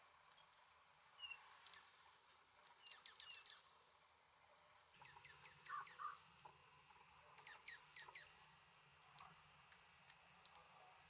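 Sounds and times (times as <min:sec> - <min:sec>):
songbirds chirping: 0:00.2 - 0:03.8, 0:04.8 - 0:09.3.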